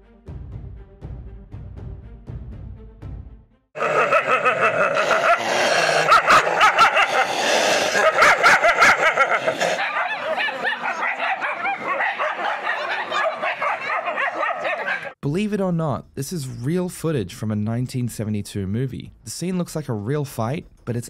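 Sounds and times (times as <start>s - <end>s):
dogs snarling and barking in a fight: 3.8s - 15.2s.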